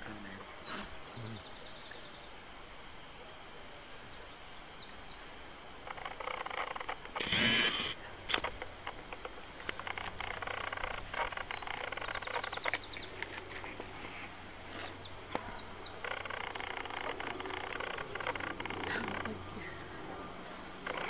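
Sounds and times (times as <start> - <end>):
quiet talk: 0.0 - 1.6
songbird trilling and chirping: 0.3 - 3.2, 4.1 - 6.8, 9.8 - 19.4.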